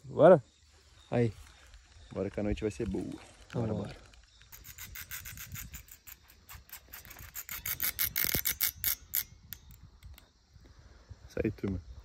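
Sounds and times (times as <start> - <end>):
fishing reel ticking rasp: 4.4 - 10.2.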